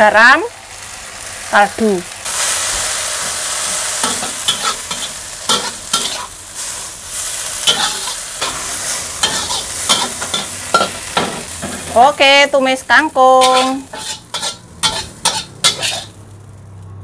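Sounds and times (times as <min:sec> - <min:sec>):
greens sizzling in a wok: 0:00.0 - 0:17.0
spatula scraping and clinking wok: 0:02.3 - 0:12.1, 0:13.3 - 0:16.2.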